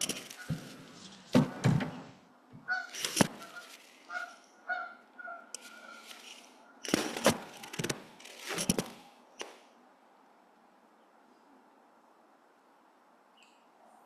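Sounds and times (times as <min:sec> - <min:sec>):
rustle: 0:00.0 - 0:01.4, 0:02.7 - 0:09.8
short honking calls: 0:02.7 - 0:06.1.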